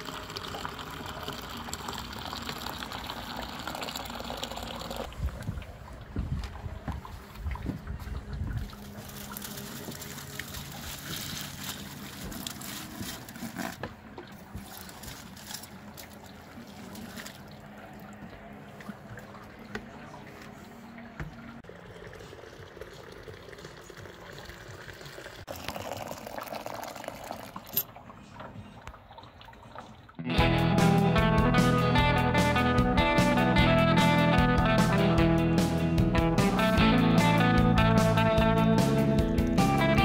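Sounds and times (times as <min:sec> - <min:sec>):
liquid pouring and splashing: 0:00.0 - 0:06.1, 0:07.0 - 0:19.7, 0:20.7 - 0:30.2.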